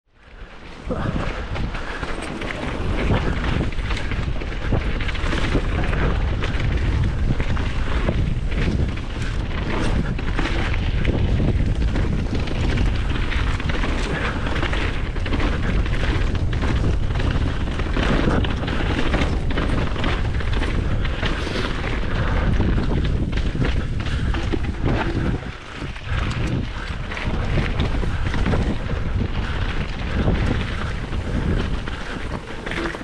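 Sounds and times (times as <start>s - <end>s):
wind buffeting microphone: 0.1s - 33.0s.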